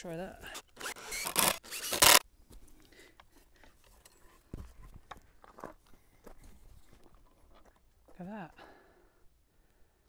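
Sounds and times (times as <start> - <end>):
power drill burst: 0.5 - 2.2.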